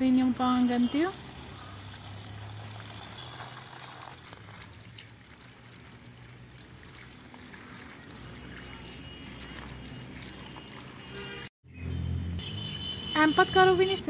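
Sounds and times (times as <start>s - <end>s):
water pouring and splashing: 0.0s - 11.6s
hands rubbing vegetables: 2.8s - 11.5s.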